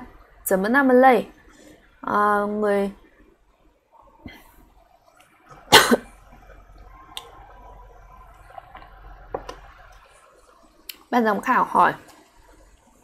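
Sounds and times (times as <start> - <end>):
woman coughing: 5.7 - 6.1.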